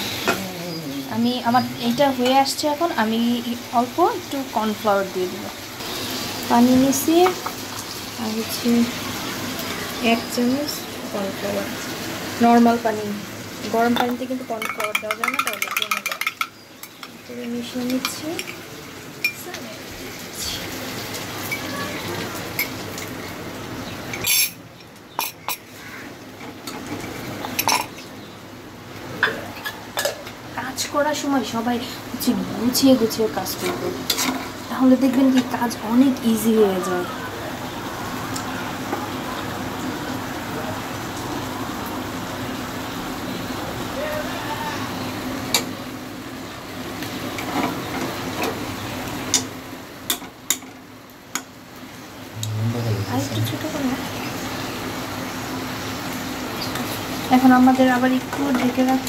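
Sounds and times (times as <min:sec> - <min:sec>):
gravy sizzling: 0:00.0 - 0:59.0
liquid hissing in hot pan: 0:04.8 - 0:10.4
spatula and jug clinking on pan: 0:13.9 - 0:17.2, 0:24.1 - 0:24.6, 0:26.7 - 0:28.0.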